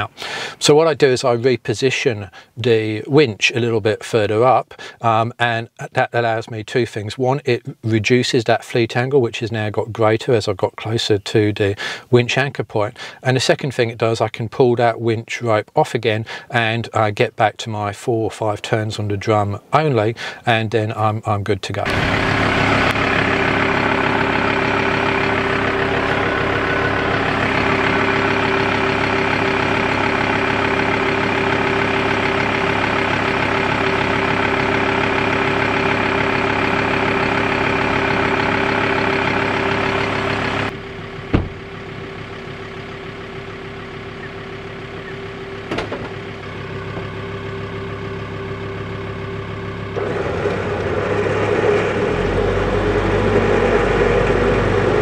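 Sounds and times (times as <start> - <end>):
truck engine idling: 0.0 - 0.7, 21.8 - 55.0.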